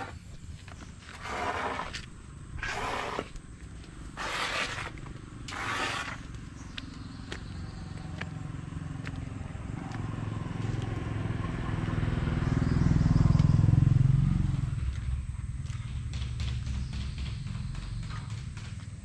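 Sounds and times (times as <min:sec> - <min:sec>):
vehicle engine passing by: 0:06.6 - 0:19.0.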